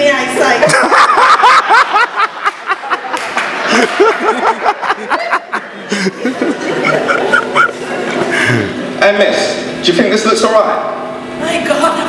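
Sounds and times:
audience laughter: 0.6s - 9.0s.

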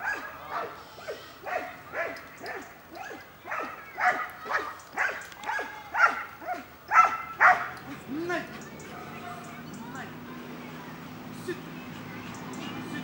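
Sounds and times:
dog barking sharply: 1.5s - 7.7s.

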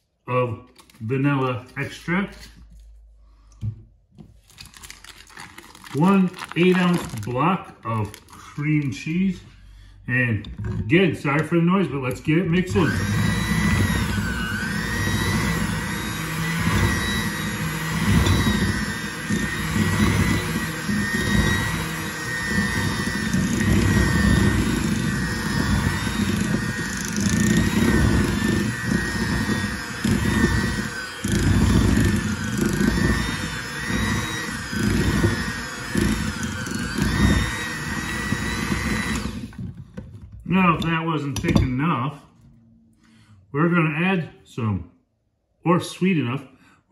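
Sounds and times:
electric hand mixer whining: 4.7s - 9.4s, 10.5s - 41.7s.

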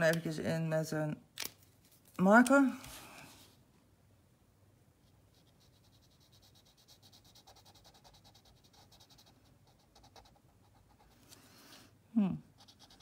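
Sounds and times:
marker scratching on paper: 5.0s - 11.3s, 12.6s - 13.0s.

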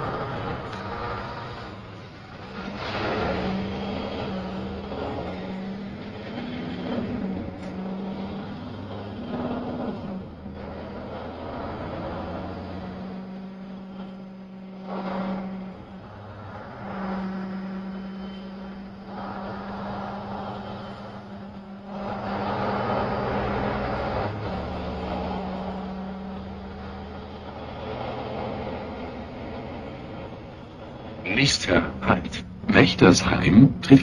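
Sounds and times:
bus engine hum: 0.0s - 34.0s
road noise: 0.0s - 34.0s.

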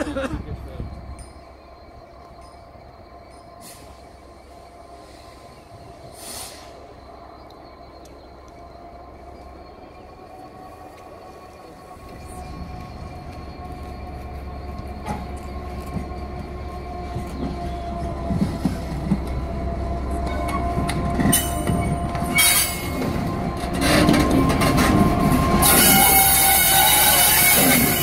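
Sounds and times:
diesel locomotive rumbling: 0.0s - 28.0s
metallic wheel and rail noise: 0.6s - 28.0s.

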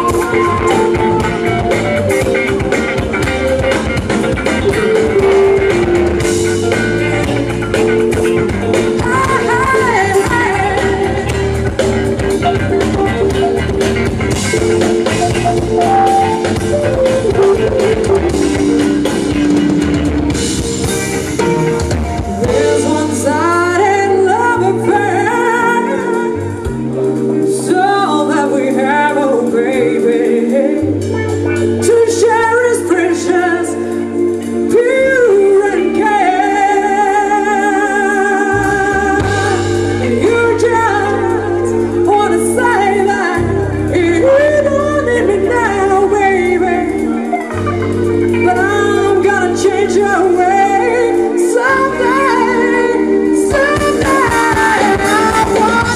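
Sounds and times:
electric guitars and bass: 0.0s - 55.9s
woman singing: 4.4s - 11.8s, 22.4s - 55.9s.

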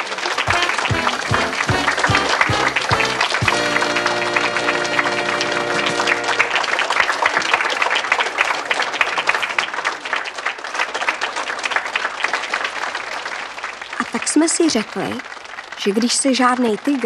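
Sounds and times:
audience applauding: 0.0s - 17.0s
held music chord: 0.5s - 6.6s.

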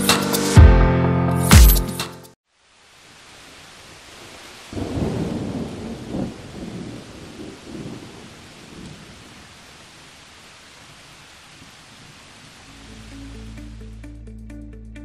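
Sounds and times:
rain hiss: 2.4s - 14.0s
thunder rumbling: 4.7s - 9.5s.

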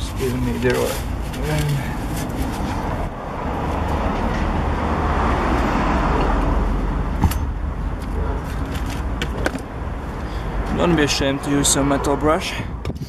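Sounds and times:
car passing by: 1.5s - 7.2s.

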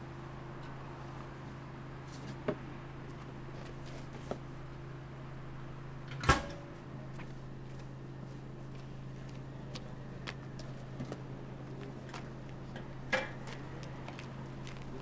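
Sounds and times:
steady low hum: 0.0s - 15.0s
locker door clacking shut: 6.1s - 6.6s.

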